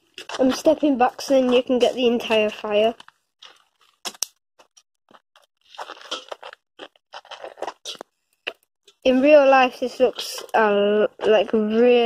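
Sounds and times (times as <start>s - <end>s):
wood fire crackling and popping: 0.0s - 12.0s.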